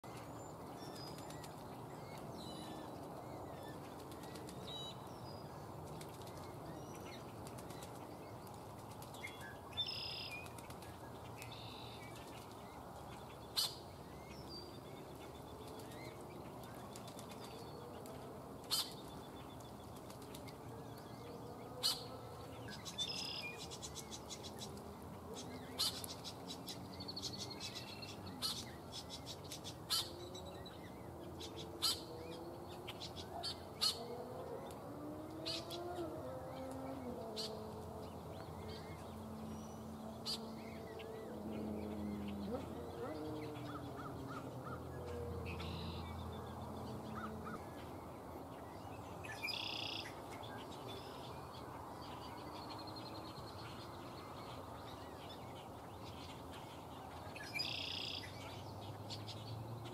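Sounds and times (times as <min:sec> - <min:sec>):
birds splashing in shallow water: 0:00.0 - 0:59.9.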